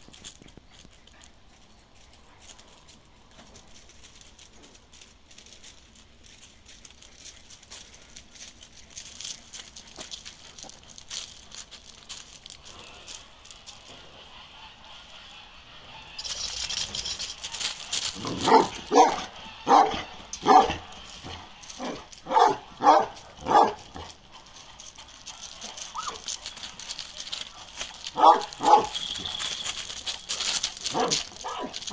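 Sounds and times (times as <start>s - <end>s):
dog barking deeply: 18.4s - 20.8s, 21.8s - 24.0s, 28.1s - 29.0s.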